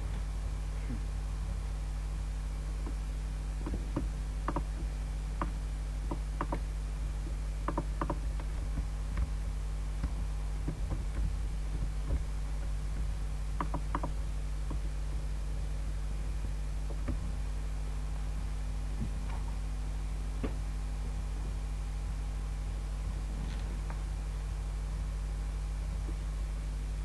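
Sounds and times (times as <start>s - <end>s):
electrical hum and hiss: 0.0s - 27.0s
computer mouse clicks: 3.6s - 4.8s, 5.4s - 6.6s, 7.7s - 8.5s, 13.6s - 14.8s.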